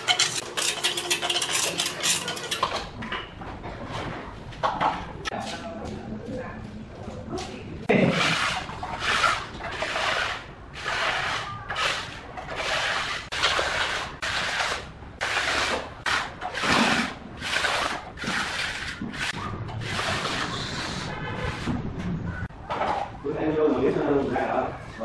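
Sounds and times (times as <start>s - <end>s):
trowel scraping cement: 0.0s - 2.8s, 7.9s - 21.8s.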